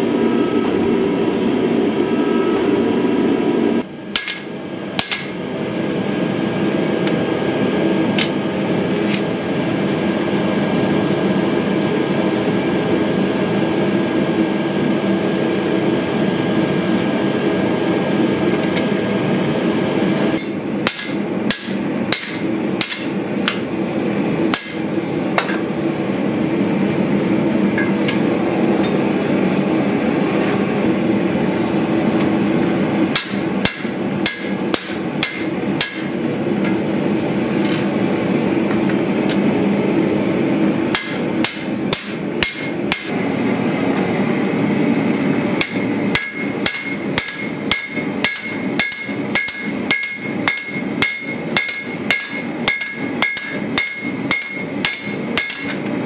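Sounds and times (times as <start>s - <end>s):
hammer striking steel on anvil: 3.8s - 5.4s, 20.2s - 23.6s, 24.5s - 25.6s, 33.1s - 36.8s, 40.9s - 43.1s, 45.6s - 55.9s.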